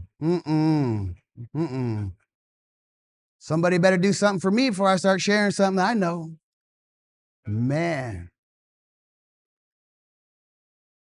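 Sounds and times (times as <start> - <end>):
man groaning: 0.0 - 2.1.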